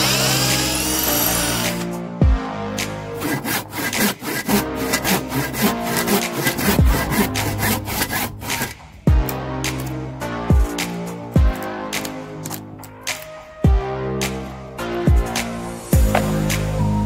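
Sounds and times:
hand saw cutting wood: 0.0s - 1.9s, 3.1s - 8.8s.

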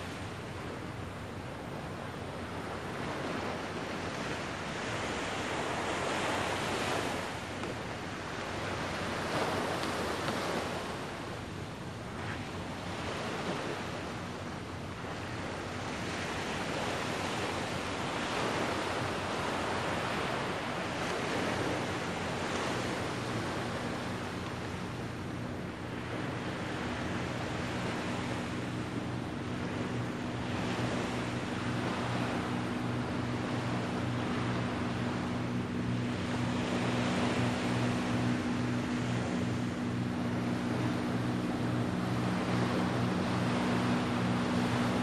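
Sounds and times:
small waves washing onto sand: 0.0s - 45.0s.

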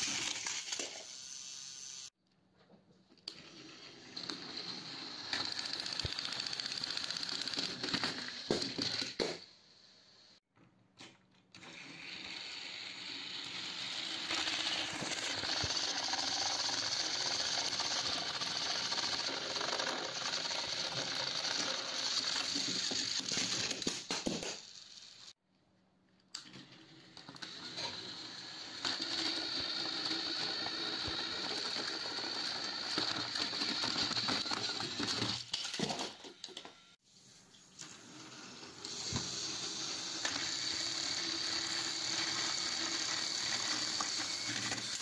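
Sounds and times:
toy train clicks: 0.0s - 1.3s, 4.2s - 9.3s, 12.3s - 25.2s, 27.2s - 36.6s, 38.8s - 45.0s
toy train motor whirring: 0.0s - 2.2s, 3.2s - 9.4s, 11.6s - 25.4s, 26.3s - 45.0s.

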